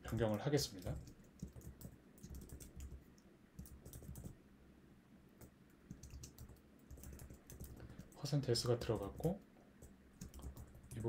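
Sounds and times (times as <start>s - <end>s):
keyboard keystrokes: 5.4s - 9.4s.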